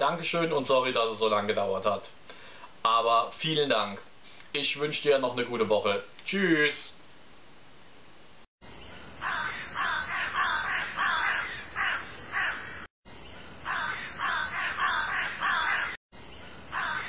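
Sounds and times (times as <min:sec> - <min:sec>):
bird harsh calls: 0:08.8 - 0:12.9, 0:13.6 - 0:16.0, 0:16.7 - 0:17.0.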